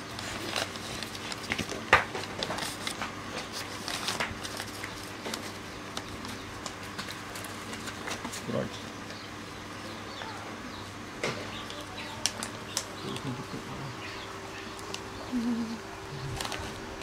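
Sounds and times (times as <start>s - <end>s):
grapes clicking and crackling: 11.2s - 13.7s.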